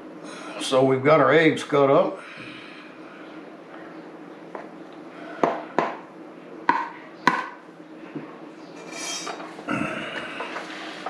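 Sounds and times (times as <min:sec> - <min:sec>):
knife scraping: 0:08.8 - 0:09.5.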